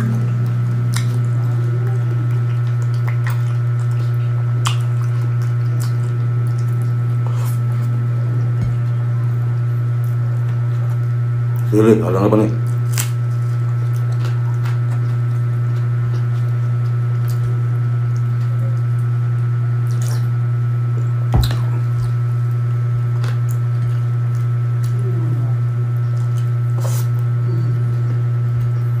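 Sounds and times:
steady low hum: 0:00.0 - 0:29.0
chewing and lip smacks: 0:00.3 - 0:09.0, 0:12.6 - 0:29.0
fingers squishing wet food: 0:00.4 - 0:09.0.

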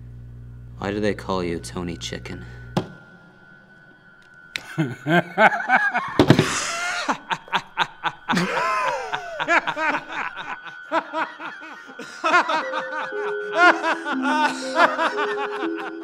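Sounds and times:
man laughing heartily: 0:04.6 - 0:16.0.

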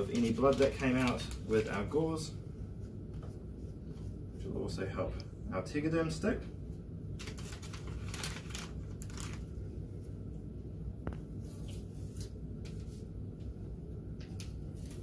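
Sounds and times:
low steady hum: 0:00.0 - 0:15.0
dressing wrapper crinkling: 0:07.1 - 0:09.7.

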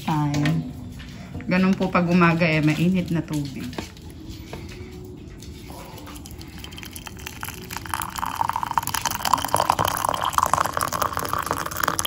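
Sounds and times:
hot water pouring into a mug: 0:06.2 - 0:12.0.

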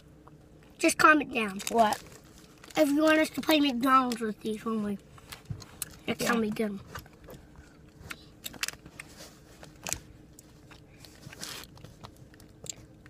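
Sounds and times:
plastic package crinkling: 0:01.4 - 0:04.2, 0:08.4 - 0:13.0.

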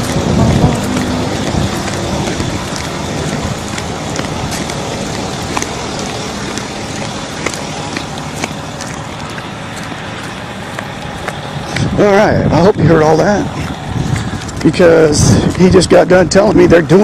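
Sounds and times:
flip-flop footsteps on pavement: 0:00.0 - 0:17.0
rushing outdoor noise: 0:00.0 - 0:17.0.

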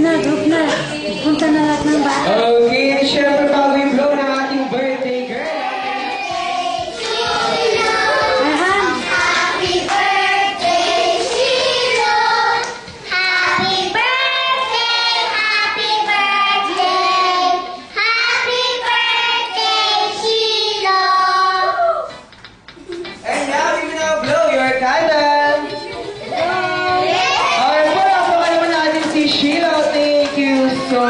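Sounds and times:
children singing together: 0:05.2 - 0:21.8.

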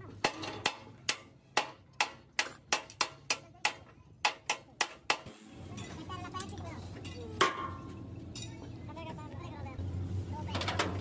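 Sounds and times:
hammer striking steel: 0:00.0 - 0:06.0.

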